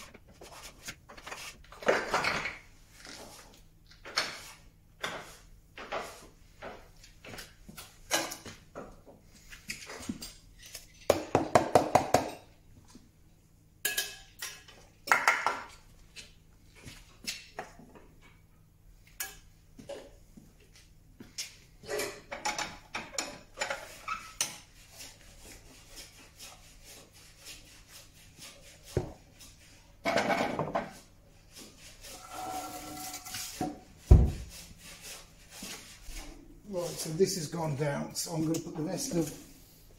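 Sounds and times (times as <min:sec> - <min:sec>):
tools clattering and knocking: 0:01.1 - 0:02.7, 0:21.8 - 0:24.6, 0:30.0 - 0:31.0.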